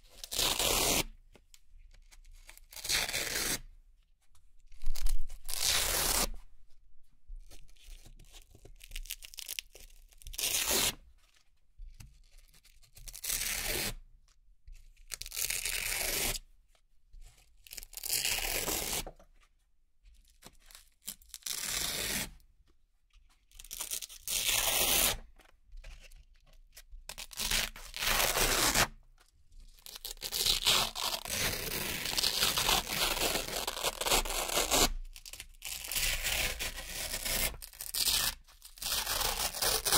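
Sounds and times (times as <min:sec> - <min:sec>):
velcro tearing: 0:00.2 - 0:01.1, 0:02.5 - 0:03.7, 0:04.8 - 0:06.4, 0:15.2 - 0:16.4, 0:17.7 - 0:19.1, 0:21.0 - 0:22.3, 0:23.6 - 0:25.3, 0:27.1 - 0:28.9, 0:29.8 - 0:39.9.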